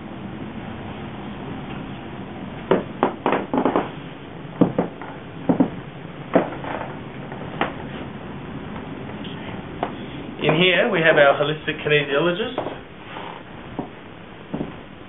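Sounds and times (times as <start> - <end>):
sharp knocks and taps: 4.6 - 6.6.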